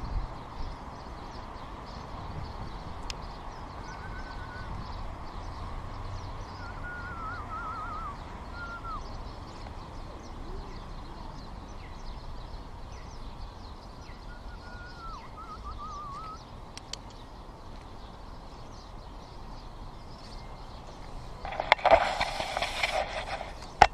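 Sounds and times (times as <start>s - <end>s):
small birds chirping faintly: 0.0s - 23.9s
steady low background noise: 0.0s - 23.9s
bird whistled phrase: 3.9s - 4.7s, 6.6s - 9.1s, 14.2s - 16.4s.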